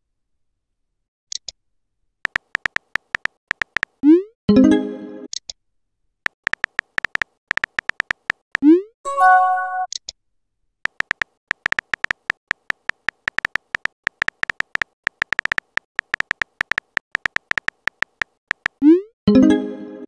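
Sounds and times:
electronic keyboard taps: 0:02.3 - 0:04.0, 0:06.3 - 0:08.4, 0:10.9 - 0:18.8.

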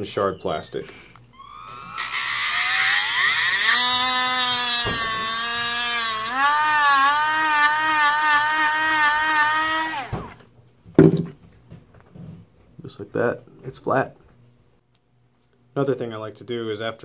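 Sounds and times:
rotary tool whining: 0:01.3 - 0:10.4.

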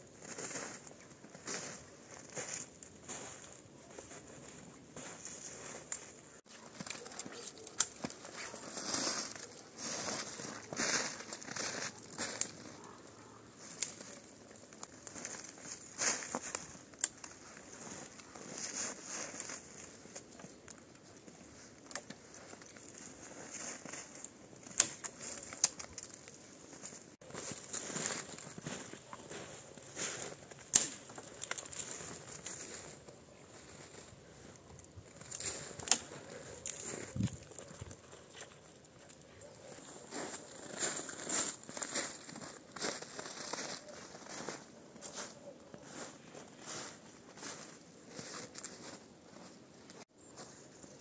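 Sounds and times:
footsteps crunching in snow: 0:00.0 - 0:20.6, 0:21.2 - 0:51.0
branches rustling: 0:00.0 - 0:51.0
dry twigs snapping: 0:06.5 - 0:08.6, 0:10.3 - 0:18.4, 0:19.5 - 0:33.2, 0:34.5 - 0:39.3.

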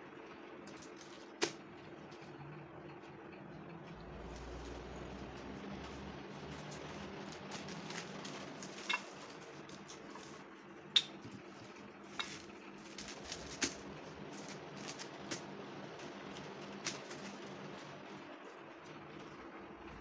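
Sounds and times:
faint room hum: 0:00.0 - 0:20.0
spoons clinking on ceramic plates: 0:08.8 - 0:09.1, 0:11.0 - 0:11.2.

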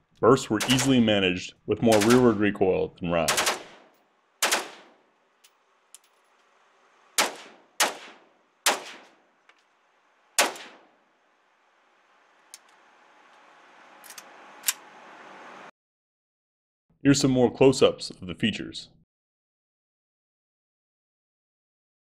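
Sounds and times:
rifle shots ringing: 0:00.6 - 0:01.1, 0:01.9 - 0:02.5, 0:03.3 - 0:05.1, 0:07.2 - 0:09.2, 0:10.4 - 0:10.9.

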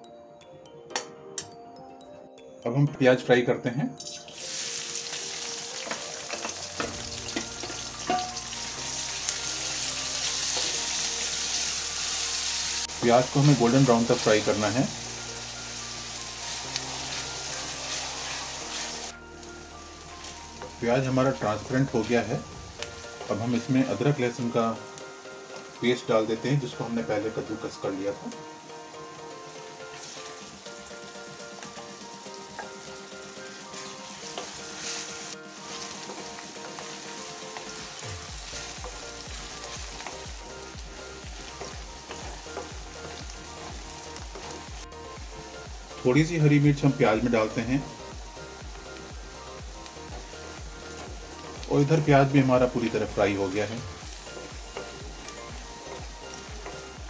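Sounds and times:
background music with held notes: 0:00.0 - 0:57.0
onions sizzling in oil: 0:04.1 - 0:57.0
spatula stirring: 0:33.8 - 0:40.4, 0:41.1 - 0:44.9.

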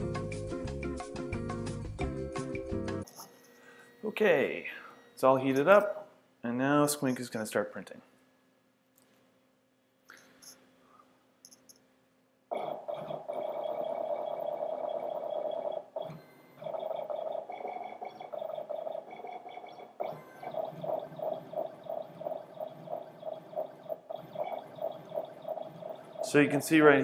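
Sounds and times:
stepper motors whining: 0:12.5 - 0:27.0.

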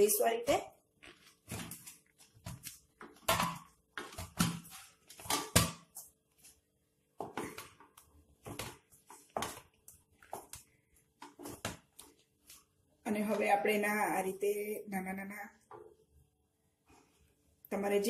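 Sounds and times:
dough slapping against steel bowl: 0:01.1 - 0:06.2, 0:07.2 - 0:12.1.

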